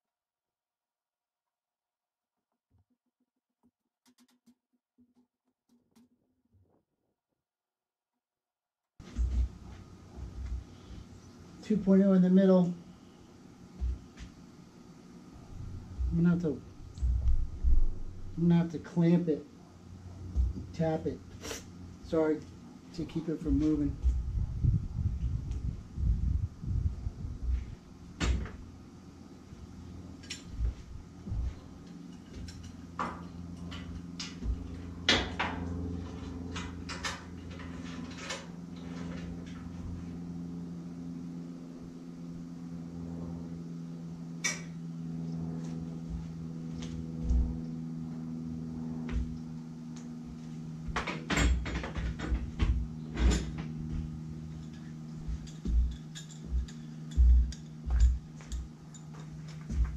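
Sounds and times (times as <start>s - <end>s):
steady low hum: 9.0s - 59.9s
metal clanks on steel frame: 30.2s - 39.8s, 50.9s - 59.9s.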